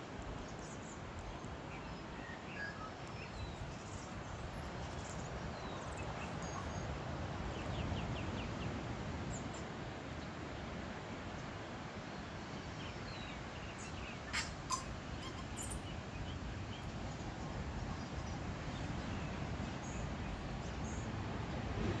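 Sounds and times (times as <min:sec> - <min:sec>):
bird calling: 0:13.8 - 0:15.9.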